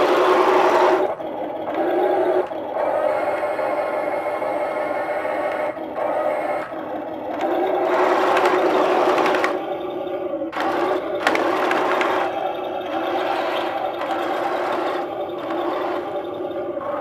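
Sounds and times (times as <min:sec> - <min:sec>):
electric motors whirring: 0:00.0 - 0:17.0
tracks rattling over ground: 0:05.7 - 0:17.0.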